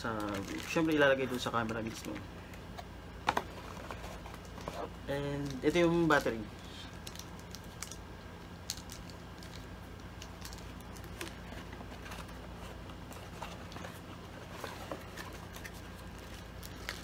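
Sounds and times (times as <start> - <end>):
cardboard packaging rustling: 0.0 - 2.2, 10.4 - 17.0
low steady hum: 0.0 - 17.0.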